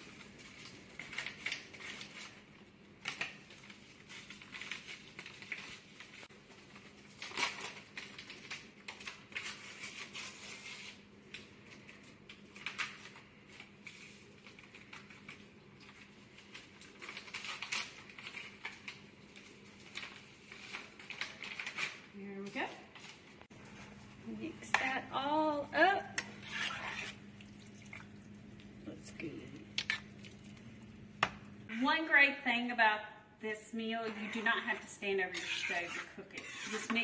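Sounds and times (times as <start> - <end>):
metal spoon scraping a pot: 26.2 - 27.2, 34.0 - 37.0.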